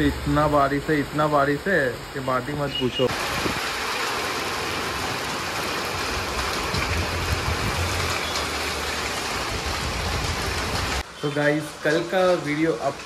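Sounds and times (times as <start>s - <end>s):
heavy rain on street and roofs: 0.0s - 13.0s.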